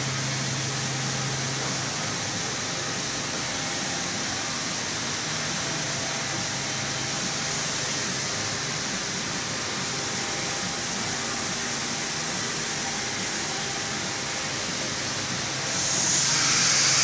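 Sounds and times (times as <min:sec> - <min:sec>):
woodworking machinery hiss and hum: 0:00.0 - 0:17.0
thin high whine: 0:03.5 - 0:17.0.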